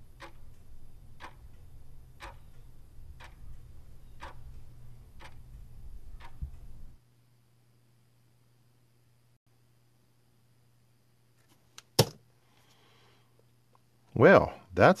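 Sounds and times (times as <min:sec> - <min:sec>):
clock ticking: 0:00.0 - 0:06.9
low hum: 0:00.0 - 0:11.1.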